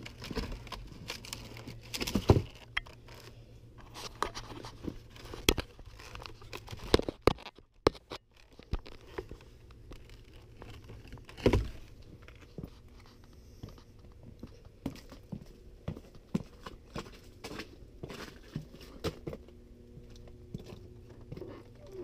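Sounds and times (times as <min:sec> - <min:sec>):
crunching crackling clicks: 0:00.0 - 0:13.4.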